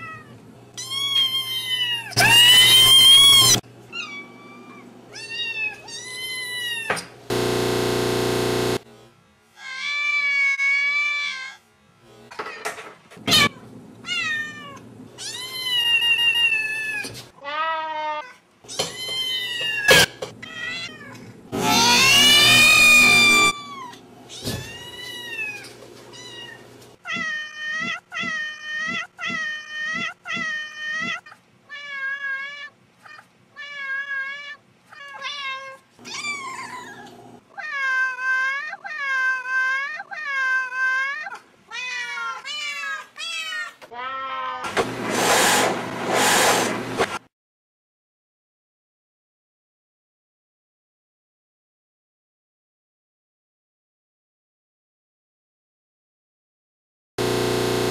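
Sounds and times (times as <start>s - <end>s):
kittens meowing: 0.8s - 6.9s, 18.7s - 32.5s.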